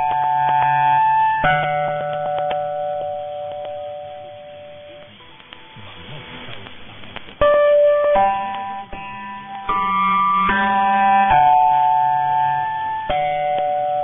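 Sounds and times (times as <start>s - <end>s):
chime notes ringing: 0.0s - 6.4s, 7.4s - 14.0s
radio hiss: 3.0s - 9.9s.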